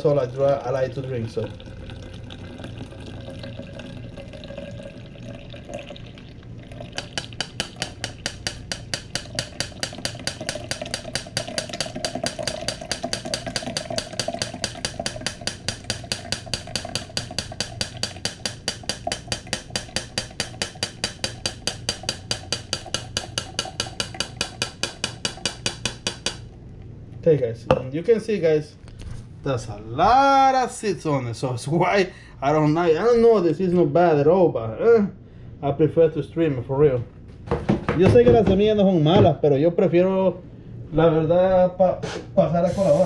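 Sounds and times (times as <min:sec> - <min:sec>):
juice trickling through strainer: 0:00.0 - 0:25.4
strainer tapping against pitcher: 0:07.0 - 0:26.4.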